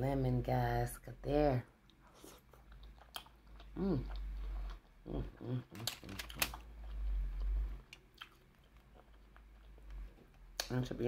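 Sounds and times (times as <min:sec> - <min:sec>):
person chewing food: 0:01.8 - 0:10.6
person humming: 0:03.8 - 0:04.1.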